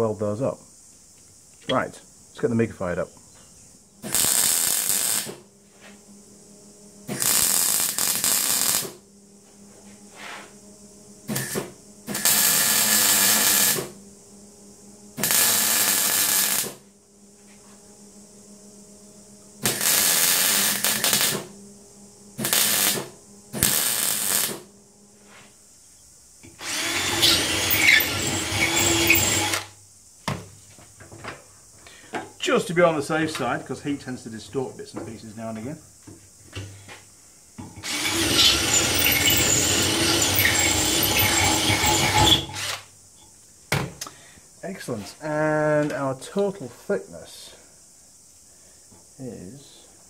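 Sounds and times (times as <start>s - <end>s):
cordless drill drilling metal: 4.0s - 5.4s, 7.1s - 9.0s, 11.3s - 14.0s, 15.2s - 16.8s, 19.6s - 21.5s, 22.4s - 24.6s, 26.6s - 29.7s, 37.8s - 42.9s
welding crackling: 4.0s - 5.5s, 7.0s - 9.0s, 11.3s - 14.0s, 15.2s - 16.9s, 19.6s - 21.6s, 22.4s - 24.7s.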